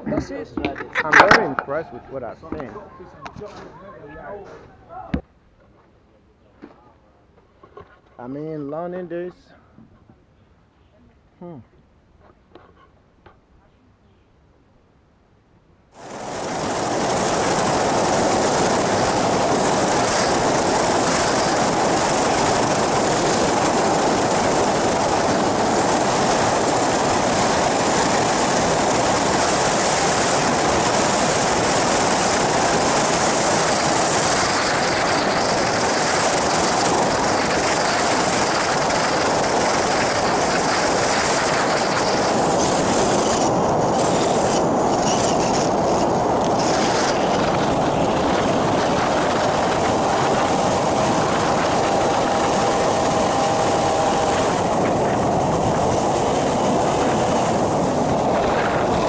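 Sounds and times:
propeller engine: 0:00.0 - 0:03.7, 0:15.9 - 0:59.0
wind on microphone: 0:16.0 - 0:59.0.

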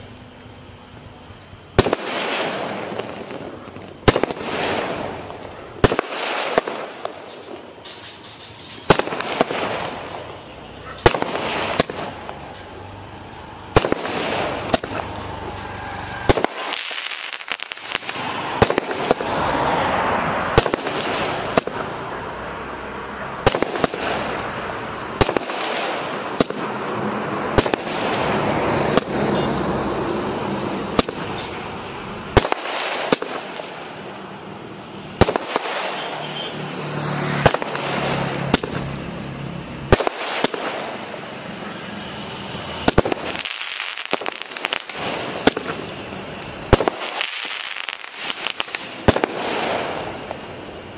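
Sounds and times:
fireworks crackling: 0:00.0 - 0:50.9
fireworks bangs: 0:01.6 - 0:50.9.

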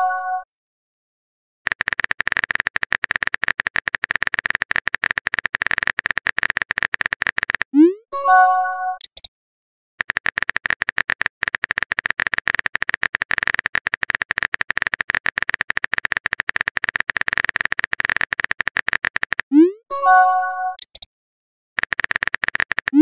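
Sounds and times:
soft keyboard clicks: 0:01.7 - 0:07.7, 0:09.0 - 0:09.3, 0:10.0 - 0:19.4, 0:20.8 - 0:21.1.

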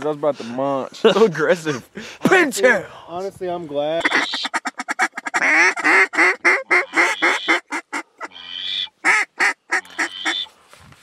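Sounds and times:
duck call quacks: 0:04.0 - 0:10.5.

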